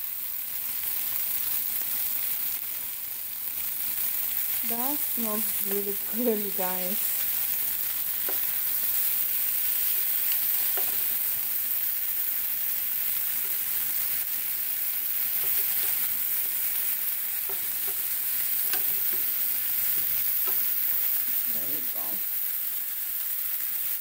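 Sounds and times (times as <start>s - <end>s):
chicken sizzling in oil: 0.0s - 24.0s
tongs clicking against pan: 8.2s - 8.6s, 9.9s - 11.2s, 15.3s - 16.6s, 17.4s - 21.4s.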